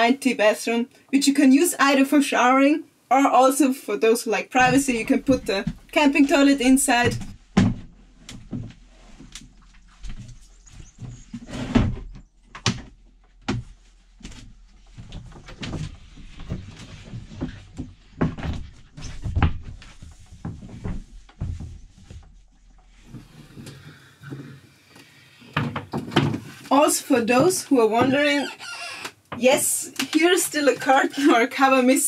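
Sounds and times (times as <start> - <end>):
panels knocking and thumping: 4.6 - 8.8, 15.0 - 23.3, 25.5 - 28.4.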